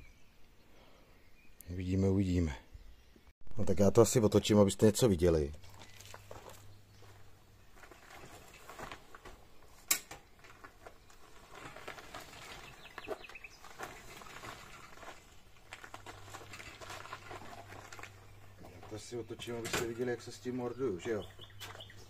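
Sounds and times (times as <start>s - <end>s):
handling knocks and rustles: 5.6s - 22.0s.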